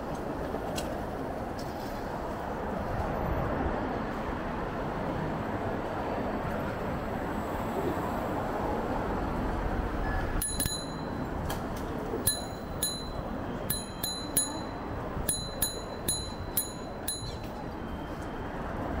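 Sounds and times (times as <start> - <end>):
street and riding noise hiss: 0.0 - 19.0
bicycle bell dinging: 10.4 - 11.5, 12.2 - 18.0.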